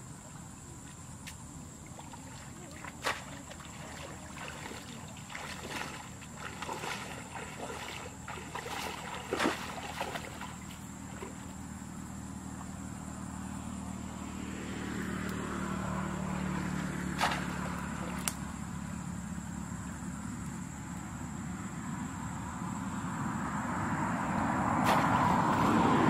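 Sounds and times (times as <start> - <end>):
water sloshing and splashing: 0.0 - 11.7, 16.7 - 18.4
steady engine hum: 0.0 - 26.0.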